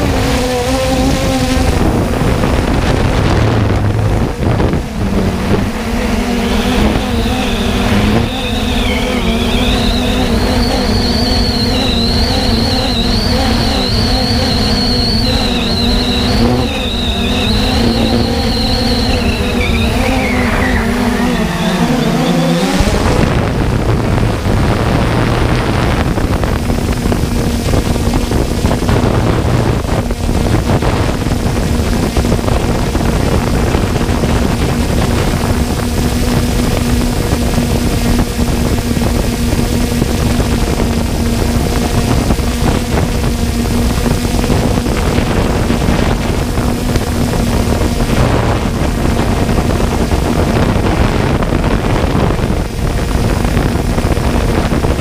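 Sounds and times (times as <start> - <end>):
drone propellers whining: 0.0 - 55.0
wind rush: 0.0 - 55.0.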